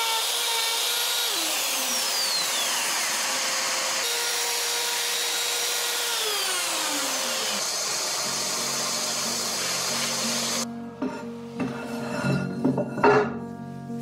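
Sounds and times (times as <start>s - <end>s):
electric router whining: 0.0s - 10.7s
shop vacuum running: 0.0s - 10.7s.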